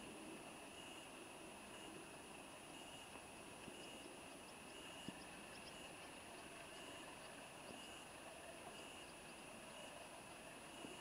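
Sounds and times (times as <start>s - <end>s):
soft tick: 3.1s - 7.8s.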